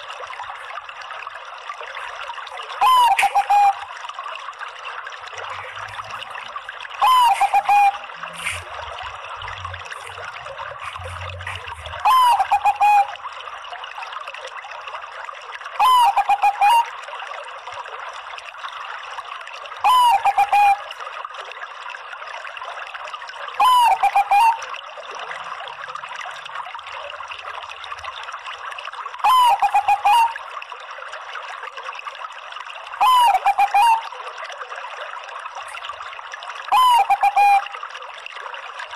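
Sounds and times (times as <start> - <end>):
dove cooing: 2.8 - 3.8, 7.0 - 8.6, 10.8 - 13.1, 15.8 - 16.9, 19.8 - 20.8, 23.6 - 24.6, 29.2 - 30.4, 33.0 - 34.0, 36.7 - 37.7.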